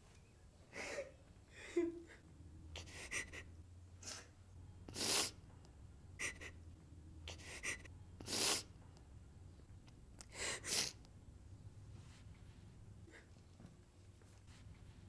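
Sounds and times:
faint low hum: 0:00.0 - 0:15.0
person gasping breaths: 0:00.7 - 0:04.3, 0:06.2 - 0:06.6, 0:07.3 - 0:08.7, 0:10.2 - 0:11.0.

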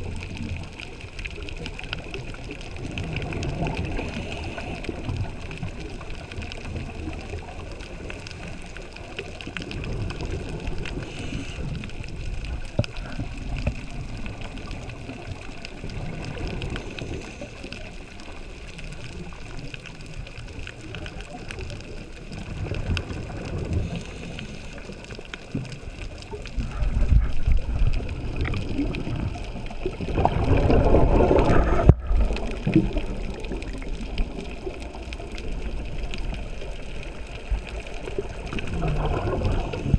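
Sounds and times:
bubbles gurgling: 0:00.0 - 0:39.9
underwater rumble: 0:00.0 - 0:39.9.

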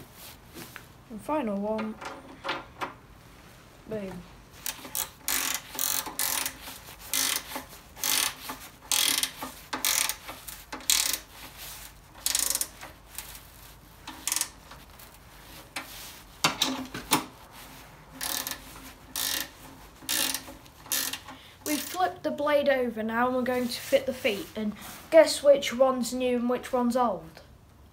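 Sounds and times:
hand ratchet clicking: 0:04.6 - 0:13.4, 0:14.0 - 0:17.3, 0:18.2 - 0:21.4.

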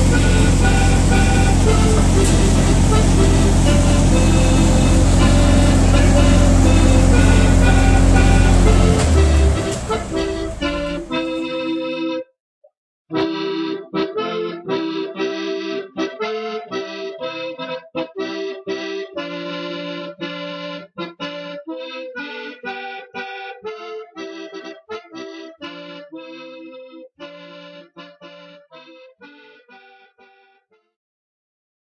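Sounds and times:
machine running: 0:00.0 - 0:11.6
accordion playing lively tune: 0:00.0 - 0:12.3, 0:13.1 - 0:30.8.

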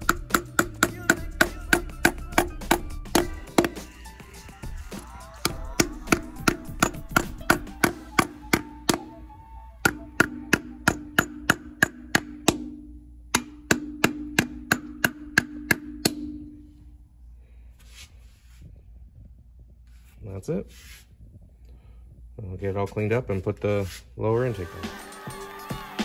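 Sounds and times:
mallet tapping metal plugs: 0:00.0 - 0:03.8, 0:05.4 - 0:09.2, 0:09.8 - 0:16.6.

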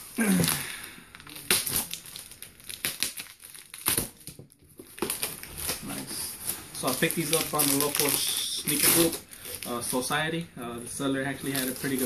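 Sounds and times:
bubble wrap crinkling: 0:00.0 - 0:10.3, 0:11.0 - 0:12.0
packing tape slit and pulled: 0:07.2 - 0:09.2.

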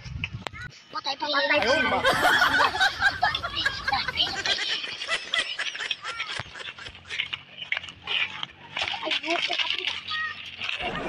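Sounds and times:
children's excited voices: 0:01.0 - 0:06.6, 0:08.0 - 0:11.0
children laughing: 0:01.6 - 0:11.0.

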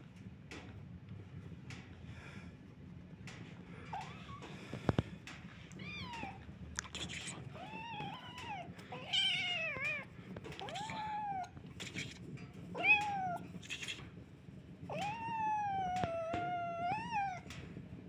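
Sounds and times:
cat meowing: 0:05.7 - 0:11.6, 0:12.8 - 0:13.9, 0:14.9 - 0:17.6.

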